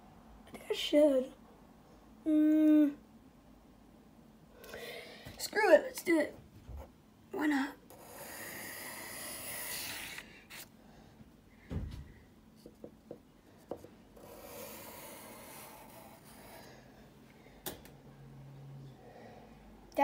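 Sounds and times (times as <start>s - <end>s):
pencil scratching on paper: 7.9s - 10.7s, 14.2s - 16.7s.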